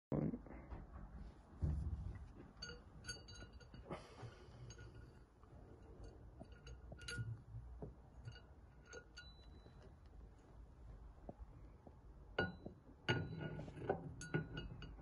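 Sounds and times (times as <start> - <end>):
metal clinks and clicks: 2.6 - 10.1.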